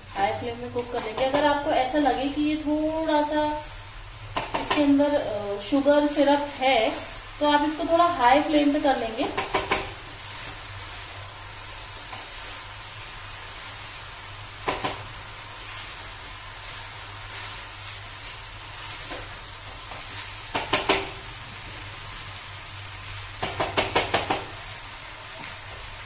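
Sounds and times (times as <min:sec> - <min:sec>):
rice sizzling in a pan: 0:00.0 - 0:26.0
spatula knocking against pan: 0:04.3 - 0:04.9, 0:09.2 - 0:10.0, 0:20.5 - 0:21.1, 0:23.4 - 0:24.5.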